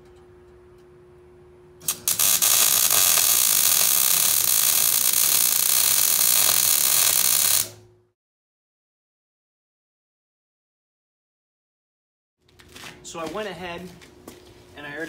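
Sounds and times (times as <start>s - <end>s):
welding arc crackling hiss: 1.8s - 7.8s.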